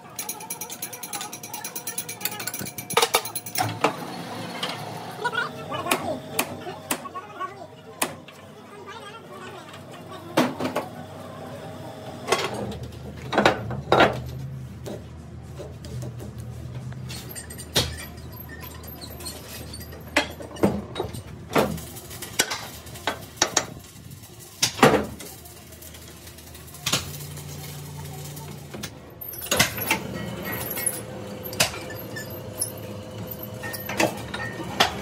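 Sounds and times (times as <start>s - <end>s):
steel tools clinking: 0.0s - 3.8s, 17.0s - 24.4s, 25.2s - 35.0s.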